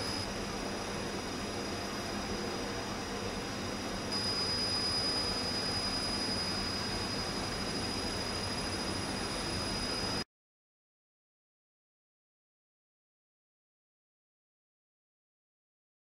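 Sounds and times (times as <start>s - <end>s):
mechanical room hiss: 0.0s - 10.2s
thin high-pitched whine: 0.0s - 10.2s.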